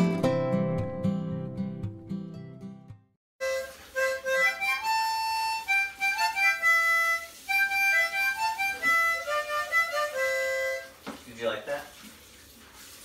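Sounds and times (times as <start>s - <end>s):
harmonica melody: 3.4s - 11.0s.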